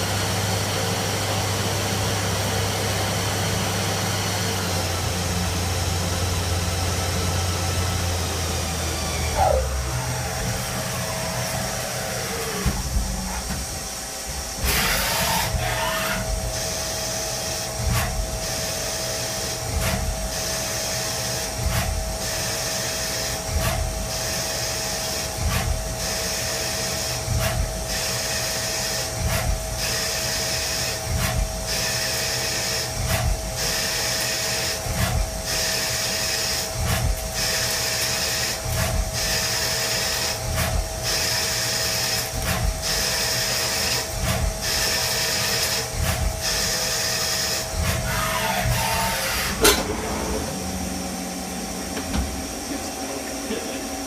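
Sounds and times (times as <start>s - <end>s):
metal cutting sound: 9.0s - 19.2s, 35.8s - 51.1s.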